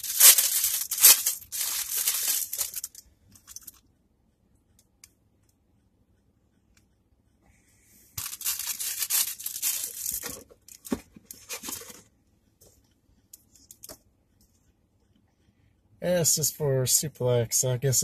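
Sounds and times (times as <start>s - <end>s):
packaging tearing and crinkling: 0.0s - 3.0s, 8.2s - 10.3s.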